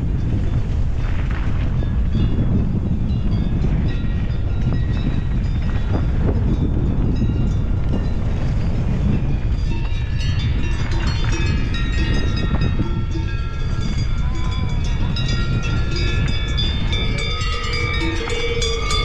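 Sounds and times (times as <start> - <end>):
bike riding rumble on gravel: 0.0 - 19.0
high ringing tones: 9.3 - 19.0.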